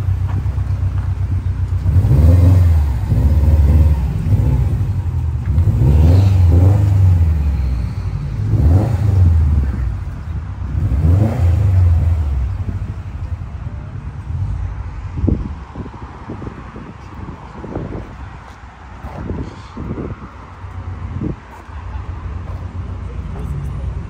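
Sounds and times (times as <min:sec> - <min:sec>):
car engine revving: 0:00.0 - 0:16.9.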